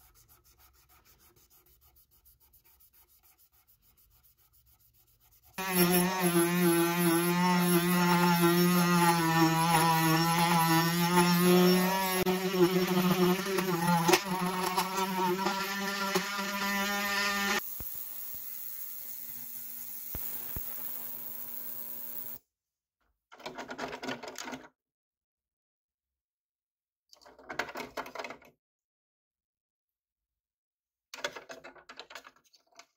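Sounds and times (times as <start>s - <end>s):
rotary tool whining: 5.6s - 22.4s.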